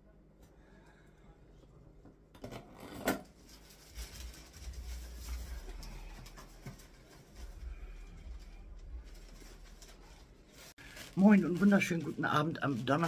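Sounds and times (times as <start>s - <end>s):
rustling and scraping handling noise: 2.4s - 13.0s.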